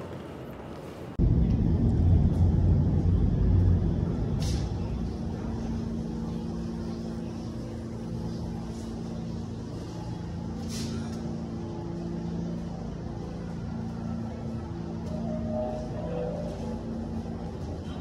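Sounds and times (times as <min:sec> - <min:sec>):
low hum with held tones: 0:00.0 - 0:18.0
subway train rumble: 0:00.0 - 0:18.0.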